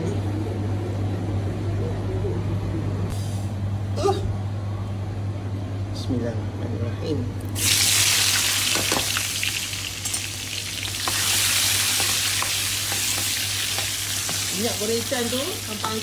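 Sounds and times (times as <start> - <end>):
onions sizzling in hot oil: 7.6 - 16.0.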